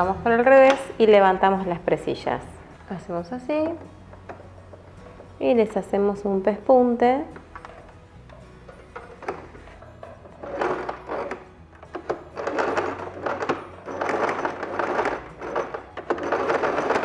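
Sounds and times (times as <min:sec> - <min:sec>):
sewing machine stitching: 0:10.3 - 0:17.0.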